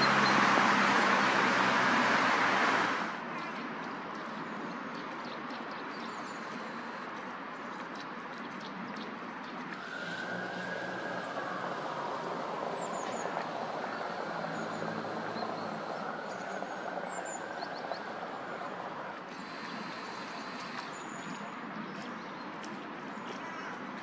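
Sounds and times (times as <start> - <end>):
passing vehicle: 0.0 - 3.3, 9.7 - 21.4
whine changing pitch: 9.8 - 20.6.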